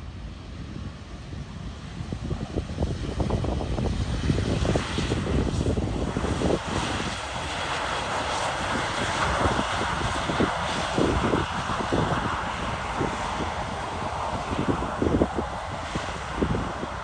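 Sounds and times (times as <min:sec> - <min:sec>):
jet engines roaring: 0:00.0 - 0:17.0
wind gusting on microphone: 0:00.0 - 0:17.0.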